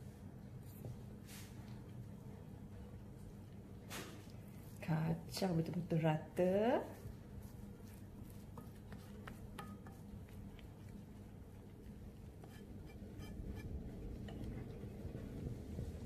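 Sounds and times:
whisk stirring batter in a bowl: 6.6 - 15.9
low hum: 10.1 - 16.0.

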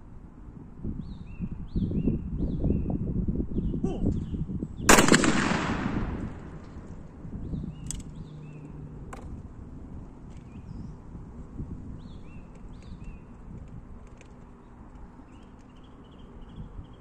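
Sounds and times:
wind rumble on microphone: 0.0 - 17.0
shotgun shot echoing: 4.9 - 7.0.

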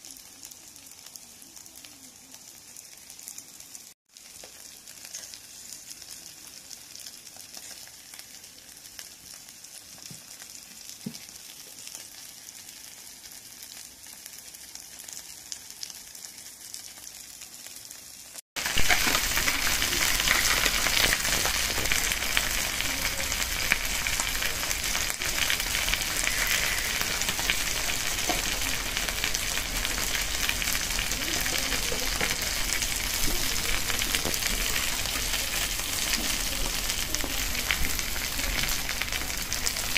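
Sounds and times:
food sizzling on a hot plate: 0.0 - 39.9.

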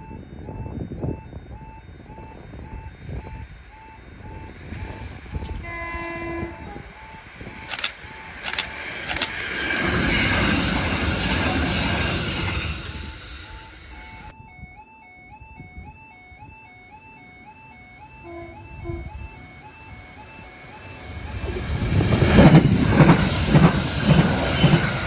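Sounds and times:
level crossing alarm beeping: 0.0 - 25.0
train passing with wheel rush: 0.6 - 14.3, 18.2 - 25.0
train horn blast: 5.6 - 7.1, 18.2 - 19.5.

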